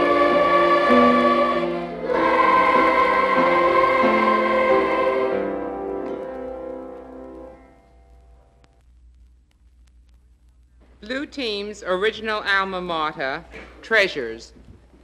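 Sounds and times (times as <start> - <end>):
girls choir singing: 0.0 - 6.6.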